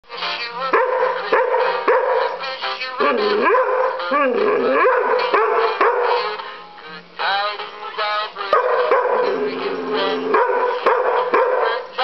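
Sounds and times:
dog barking: 0.8 - 2.4, 3.4 - 6.4, 8.5 - 9.4, 10.3 - 11.8
dog howling: 3.0 - 6.3, 8.6 - 11.8.

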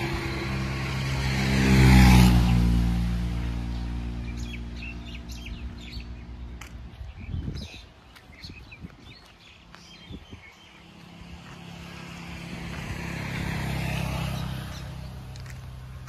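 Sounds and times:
vehicle driving past: 0.0 - 6.7, 10.7 - 16.0.

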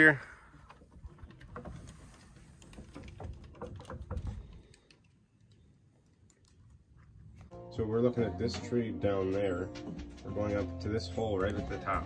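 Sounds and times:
footsteps on wooden boards: 0.6 - 4.8.

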